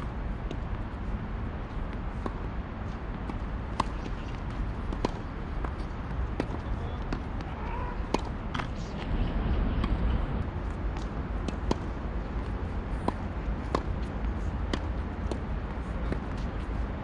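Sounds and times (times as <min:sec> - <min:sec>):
steady low rumble: 0:00.0 - 0:17.0
tennis balls struck by rackets: 0:01.6 - 0:17.0
balls bouncing on hard court: 0:03.1 - 0:09.2.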